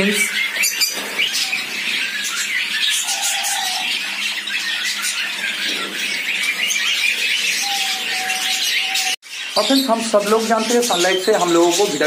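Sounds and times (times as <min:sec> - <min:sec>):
cage birds chirping and chattering: 0:00.0 - 0:12.0.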